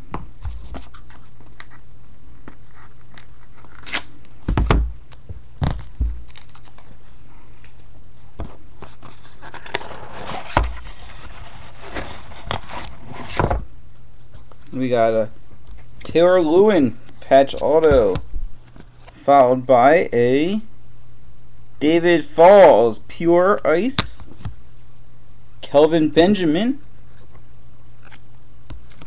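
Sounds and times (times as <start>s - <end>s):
wrapping tearing and crinkling: 3.1s - 4.1s, 5.7s - 7.2s.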